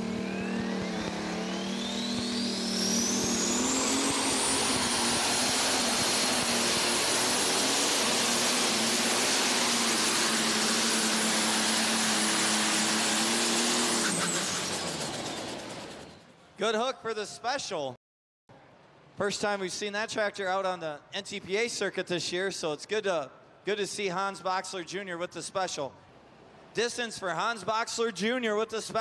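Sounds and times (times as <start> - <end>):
diesel tractor engine at full power: 0.0 - 16.4
high turbo whine: 0.0 - 16.4.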